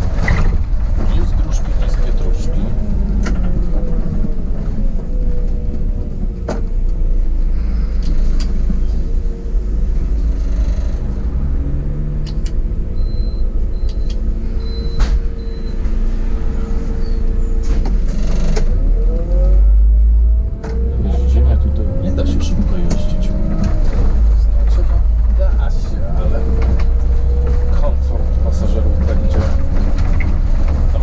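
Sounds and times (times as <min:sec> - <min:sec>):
bus engine running: 0:00.0 - 0:31.0
short high beeps: 0:13.0 - 0:15.8.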